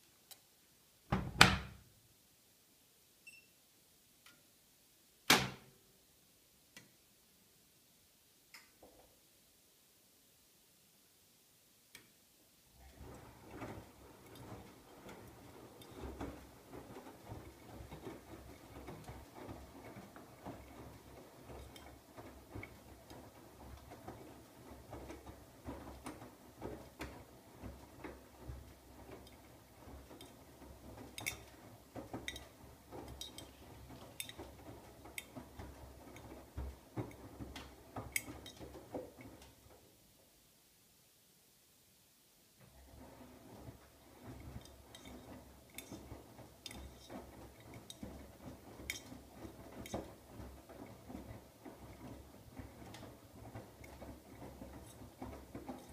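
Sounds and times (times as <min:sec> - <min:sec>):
laundry sloshing in water: 0:12.7 - 0:39.7, 0:42.7 - 0:55.9
washing machine drum humming: 0:12.7 - 0:40.0, 0:42.6 - 0:55.9.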